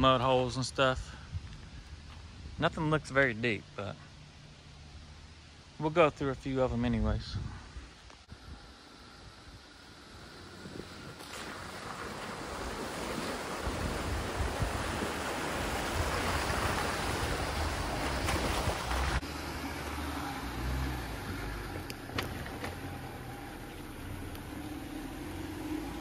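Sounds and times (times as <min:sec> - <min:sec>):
water and mud splashing: 0:09.8 - 0:26.0.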